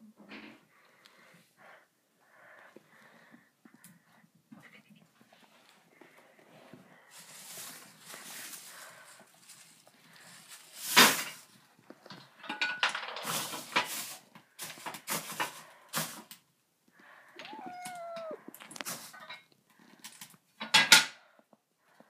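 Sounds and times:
cat meowing: 17.4s - 18.6s.

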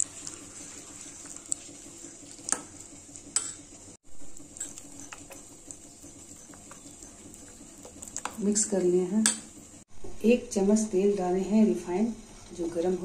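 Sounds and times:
spoon stirring batter: 0.0s - 9.8s.

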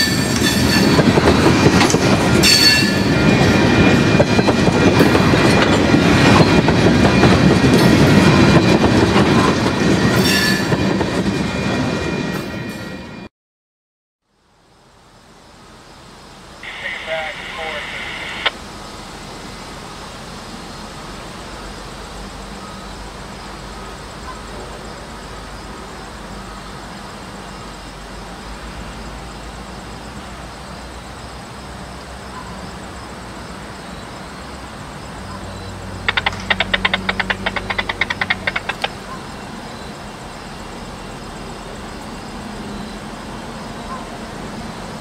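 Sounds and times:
diesel locomotive engine rumbling: 0.0s - 12.4s, 14.8s - 45.0s
rapid sharp clicks: 36.1s - 39.0s.

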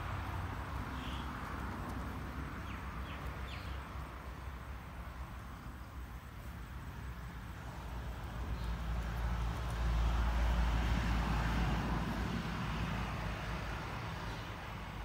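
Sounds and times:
vehicle passing by: 0.0s - 15.0s.

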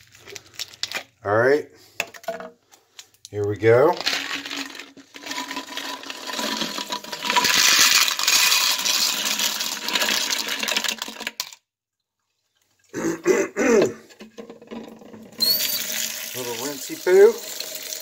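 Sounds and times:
metal bullets clattering into colander: 3.9s - 11.6s.

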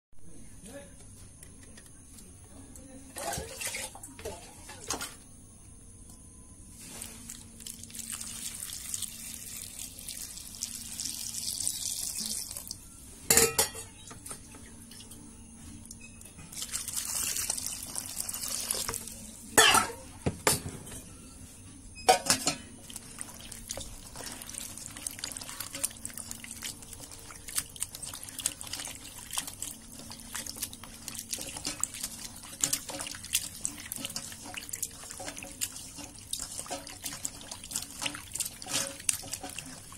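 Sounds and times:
tap water running into colander: 7.3s - 12.8s, 16.5s - 19.8s, 22.1s - 39.9s
water dripping and trickling: 7.3s - 12.8s, 15.8s - 19.2s, 22.8s - 39.9s.

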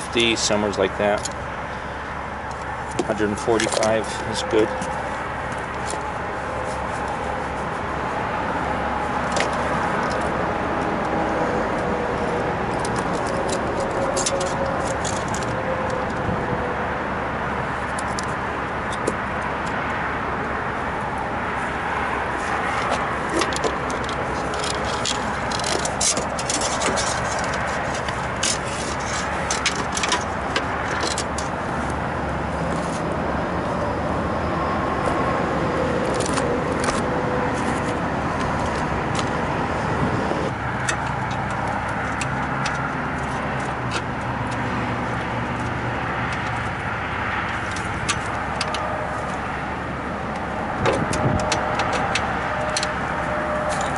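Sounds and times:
small parts clicking and scraping: 2.4s - 7.2s, 12.7s - 16.2s, 17.8s - 19.8s, 22.4s - 31.6s, 50.3s - 53.9s.

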